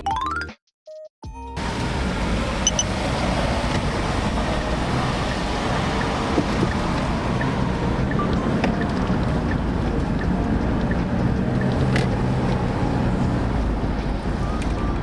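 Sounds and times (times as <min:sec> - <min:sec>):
car road and engine noise: 0:01.6 - 0:15.0
short high electronic beeps: 0:02.6 - 0:02.9.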